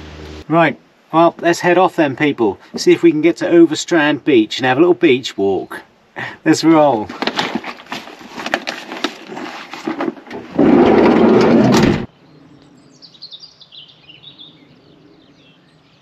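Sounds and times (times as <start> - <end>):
small birds chirping: 12.1 - 16.0.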